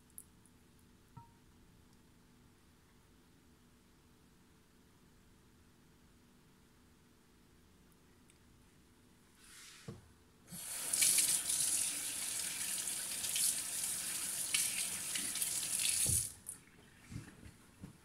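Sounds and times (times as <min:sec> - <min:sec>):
tap running into sink: 0:15.8 - 0:16.3.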